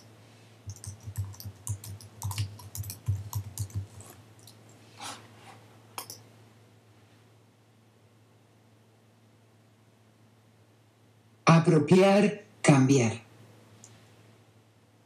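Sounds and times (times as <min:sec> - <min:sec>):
rapid clicking: 0:00.7 - 0:04.2.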